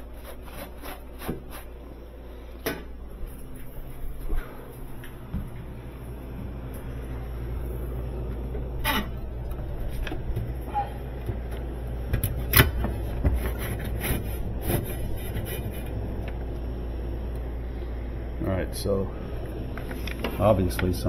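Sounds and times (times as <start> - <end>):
refrigerator machinery hum: 0.0 - 21.0.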